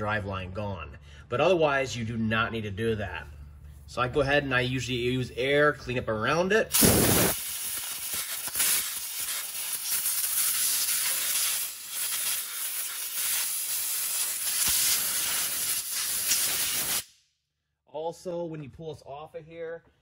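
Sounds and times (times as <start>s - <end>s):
compressed air blow gun hissing: 6.7s - 17.1s.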